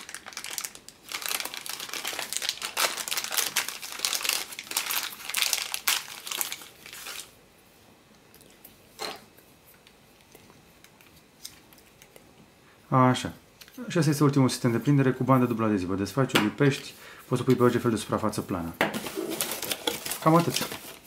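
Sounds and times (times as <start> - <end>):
plastic bag crinkling: 0.0 - 7.4, 19.0 - 21.0.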